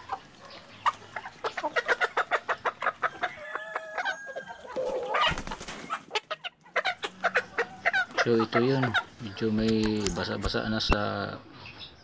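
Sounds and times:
chicken squawk: 0.0s - 9.2s
chickens clucking: 0.0s - 12.0s.

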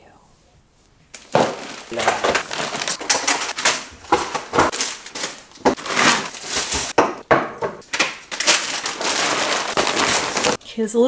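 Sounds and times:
plastic bag rustling: 1.2s - 7.1s, 7.9s - 10.6s.

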